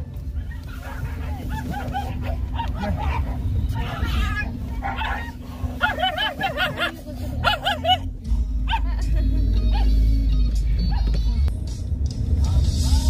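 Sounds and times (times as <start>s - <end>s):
car humming: 0.0s - 13.0s
dogs yelping: 0.1s - 8.1s, 8.7s - 9.0s, 9.7s - 10.0s.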